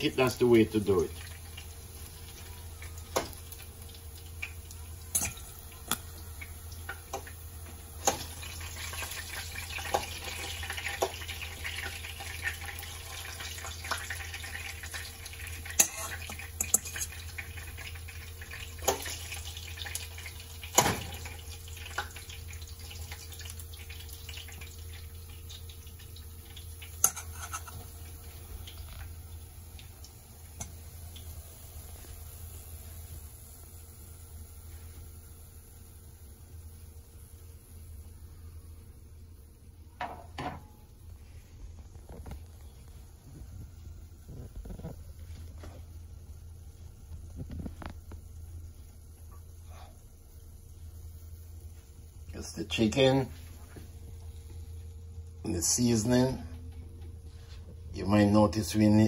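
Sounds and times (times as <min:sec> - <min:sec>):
steady low hum: 0:00.0 - 0:59.0
fork clinking against metal bowl: 0:27.0 - 0:27.8
soft hiss: 0:27.8 - 0:39.9.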